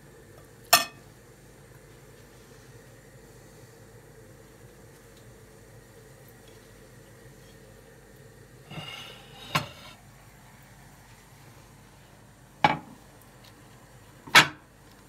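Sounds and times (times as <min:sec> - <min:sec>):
dishes clinking and knocking: 0:00.8 - 0:01.0, 0:08.8 - 0:10.0, 0:12.6 - 0:13.0
short scrape on counter: 0:08.7 - 0:10.0.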